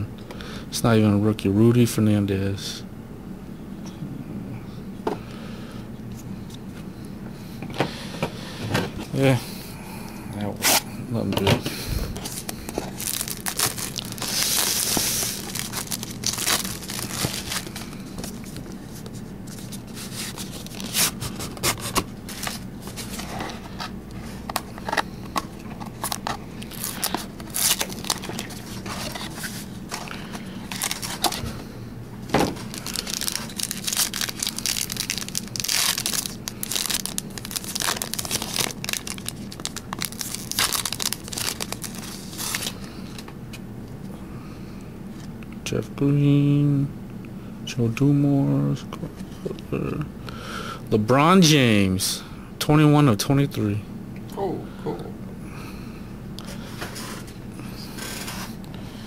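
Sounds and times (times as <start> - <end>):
foil wrappers crinkling: 12.1 - 31.7, 32.3 - 43.2, 56.8 - 58.6.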